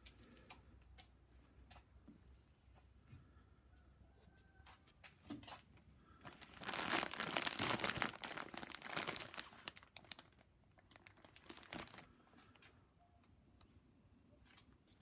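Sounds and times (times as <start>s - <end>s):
plastic bag crinkling: 6.2s - 12.7s.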